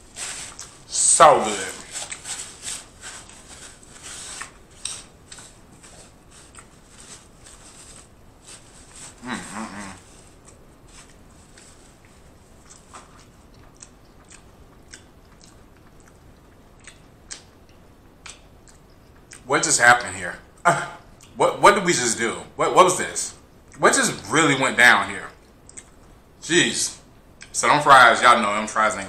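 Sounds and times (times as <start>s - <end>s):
person humming: 9.2s - 10.1s
chewing mouth clicks: 10.5s - 19.4s, 25.4s - 26.0s.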